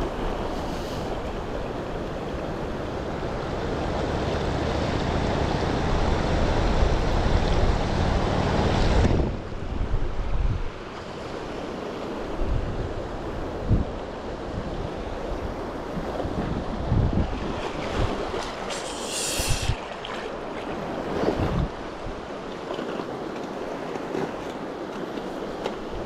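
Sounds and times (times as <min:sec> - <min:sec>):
wind buffeting microphone: 0:00.0 - 0:10.9, 0:12.2 - 0:18.8, 0:19.4 - 0:22.5
river rapid rushing water: 0:00.0 - 0:26.0
short high hiss: 0:18.7 - 0:19.8.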